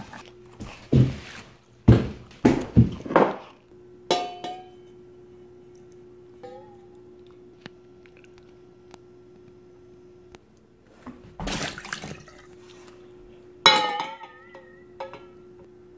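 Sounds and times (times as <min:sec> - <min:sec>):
faint hum: 0:00.0 - 0:15.9
liquid pouring and splashing: 0:11.4 - 0:12.9.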